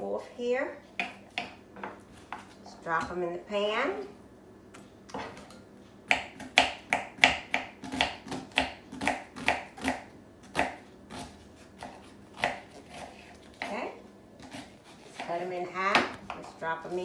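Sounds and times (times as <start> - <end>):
knife chopping on wooden board: 1.0 - 2.5, 6.1 - 13.8.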